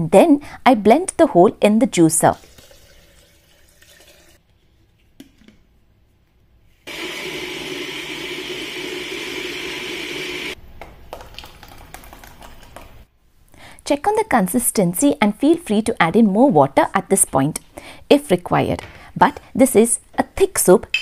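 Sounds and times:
thick soup pouring into pot: 0:11.2 - 0:13.0.

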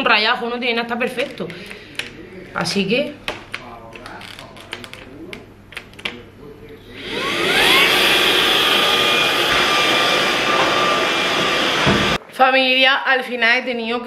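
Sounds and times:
plastic clicks: 0:03.3 - 0:06.2
vacuum motor whine and air rush: 0:06.9 - 0:12.2.

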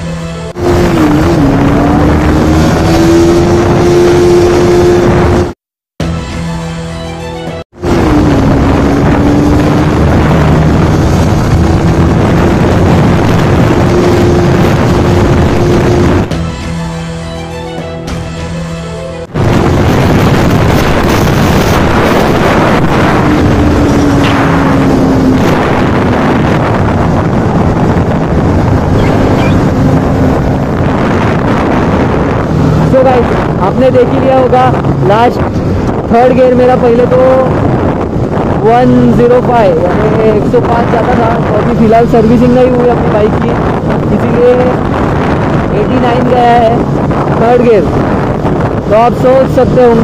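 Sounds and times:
wind rush on microphone: 0:00.0 - 0:05.6, 0:07.6 - 0:17.2, 0:19.2 - 0:50.0
motorcycle engine revving: 0:00.5 - 0:05.6, 0:07.7 - 0:16.5, 0:19.2 - 0:38.6.

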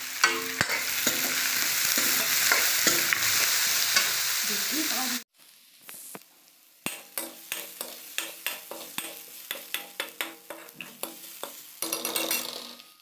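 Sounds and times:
oil sizzling: 0:00.0 - 0:13.0
spoon scraping a metal pan: 0:00.2 - 0:04.2, 0:07.0 - 0:13.0.

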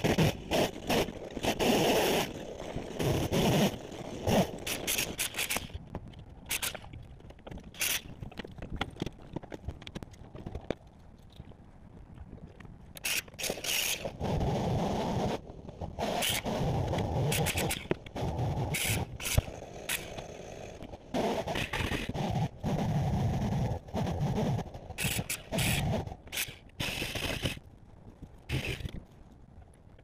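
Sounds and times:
scraping and scratching demolition: 0:00.0 - 0:10.6.

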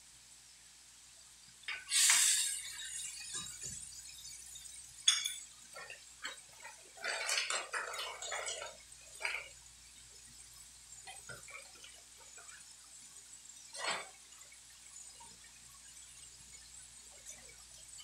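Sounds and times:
metal spatula clink: 0:05.1 - 0:05.5.

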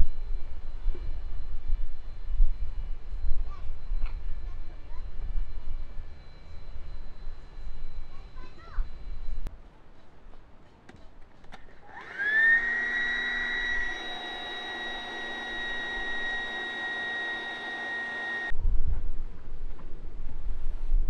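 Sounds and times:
small motor whining: 0:11.8 - 0:18.5
wind rumble on microphone: 0:18.5 - 0:21.0.

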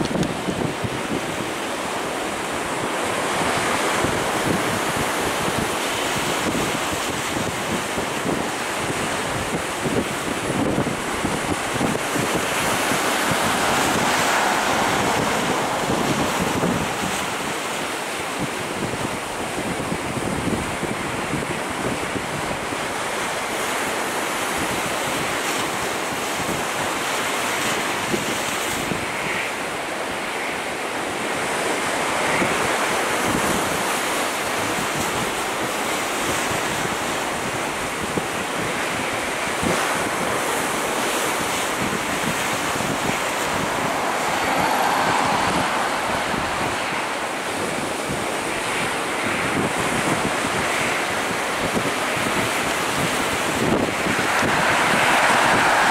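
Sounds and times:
jet engine roar: 0:00.0 - 0:19.4, 0:37.3 - 0:55.9.

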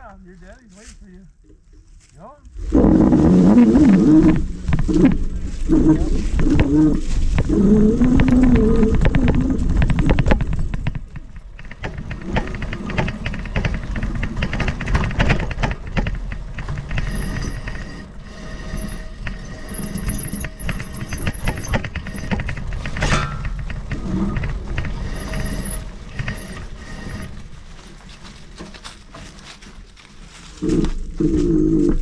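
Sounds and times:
low rumble of ground noise: 0:00.0 - 0:32.0
bike rattling over dirt trail: 0:02.9 - 0:32.0.

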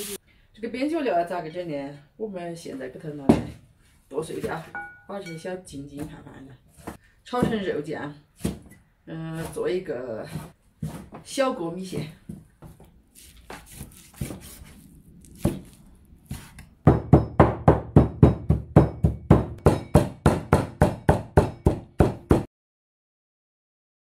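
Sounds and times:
cleaver chopping on wooden board: 0:08.4 - 0:08.8, 0:12.6 - 0:22.5.

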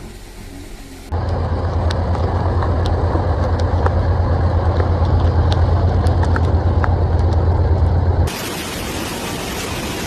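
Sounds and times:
rushing floodwater: 0:08.3 - 0:10.0.

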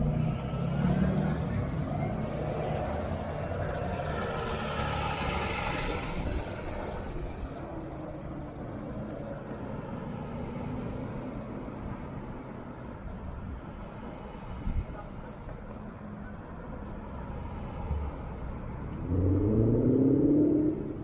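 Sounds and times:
large vehicle passing: 0:17.7 - 0:21.0.

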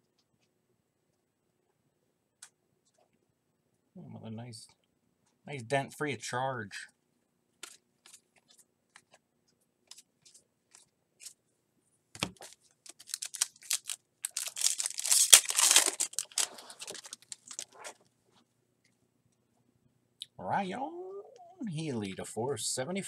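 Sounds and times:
cards clicking: 0:12.2 - 0:17.8
foil wrapper tearing and crinkling: 0:12.4 - 0:18.0.

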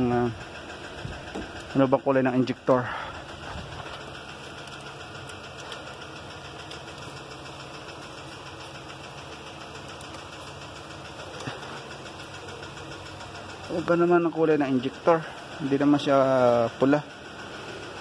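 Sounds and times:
engine humming steadily: 0:00.0 - 0:18.0.

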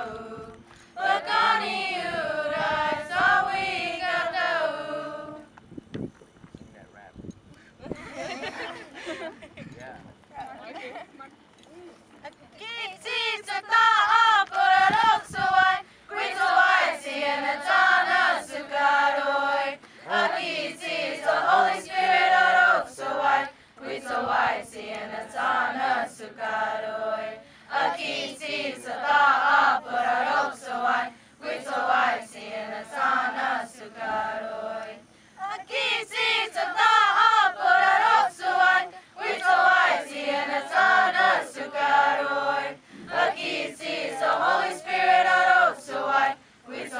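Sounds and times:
choir singing a hymn in unison: 0:00.0 - 0:05.6, 0:12.7 - 0:46.9
singers breathing: 0:15.8 - 0:16.1, 0:23.5 - 0:23.8, 0:27.4 - 0:27.7, 0:31.1 - 0:31.4, 0:35.0 - 0:35.4, 0:42.8 - 0:43.2, 0:46.4 - 0:46.7.

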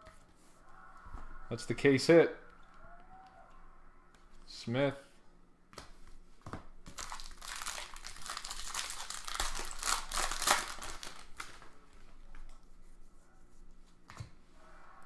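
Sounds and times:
wrapper tearing and crinkling: 0:06.9 - 0:11.7.

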